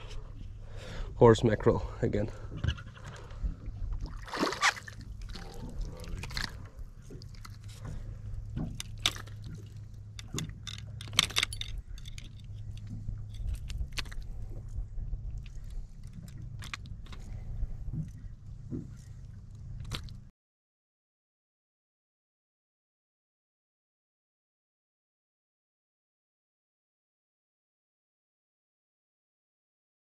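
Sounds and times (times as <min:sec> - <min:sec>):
steady low hum: 0:00.0 - 0:20.3
fish splashing: 0:04.0 - 0:08.0
clicks and rattles of fishing lure: 0:08.6 - 0:14.4, 0:15.4 - 0:17.4, 0:19.8 - 0:20.2.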